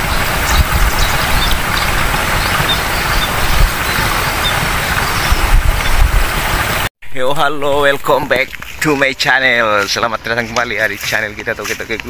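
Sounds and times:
low rumble: 0.0 - 6.9
rushing outdoor noise: 0.0 - 12.0.

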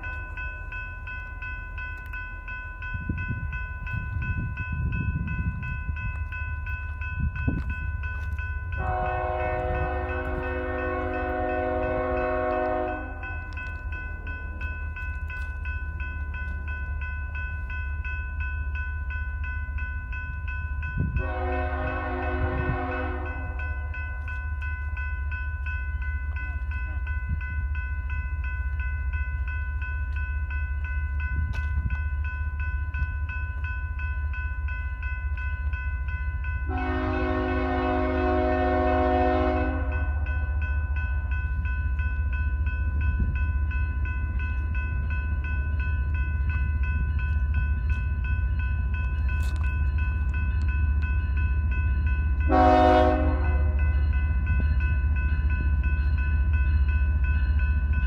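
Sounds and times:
crossing bell ringing: 0.0 - 58.0
train horn blasts: 8.8 - 13.4, 21.1 - 23.6, 36.7 - 40.2, 52.5 - 53.8.

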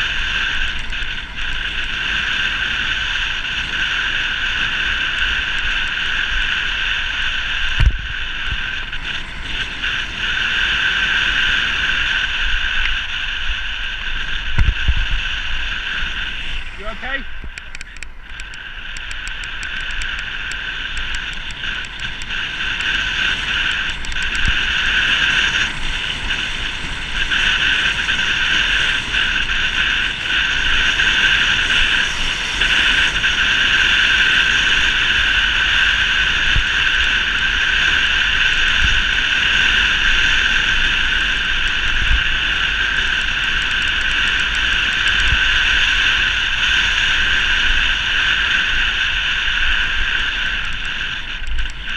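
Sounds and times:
wind roaring over camera: 0.0 - 51.9
light fast ticking: 14.5 - 48.0.

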